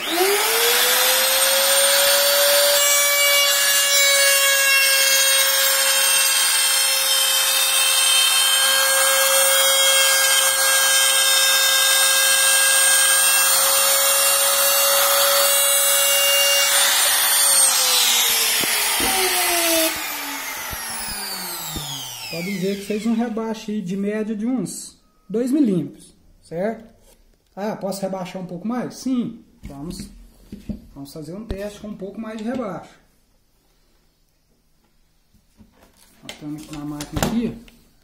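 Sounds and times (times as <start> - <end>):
router bit rasping through wood: 0.0 - 23.3
trim router whining: 0.0 - 23.4.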